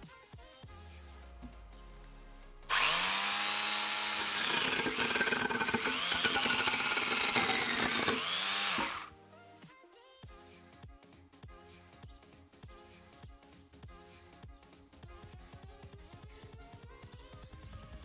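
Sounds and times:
background music: 0.0s - 18.0s
angle grinder chainsaw cutting wood: 2.7s - 9.1s.

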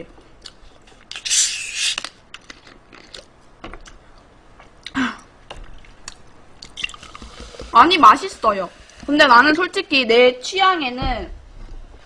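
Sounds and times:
carbonation hissing from bottle: 6.8s - 9.4s.

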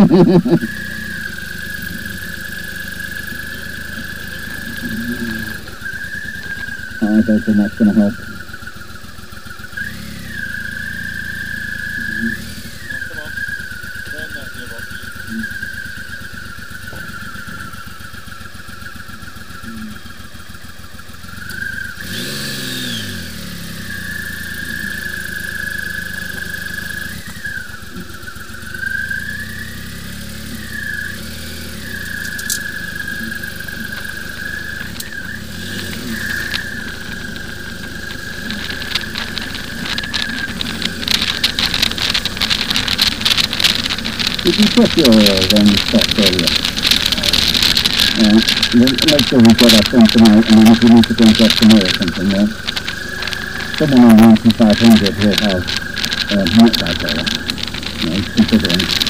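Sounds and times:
high whine: 0.0s - 20.4s, 22.2s - 59.0s
motorcycle engine running: 0.0s - 59.0s
wind buffeting microphone: 33.3s - 59.0s.

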